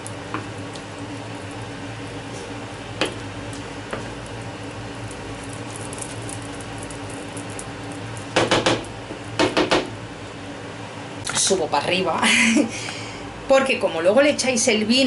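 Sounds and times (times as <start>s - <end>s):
wooden spoon stirring peas: 0.1s - 9.4s
spoon tapping on pan: 8.3s - 9.9s.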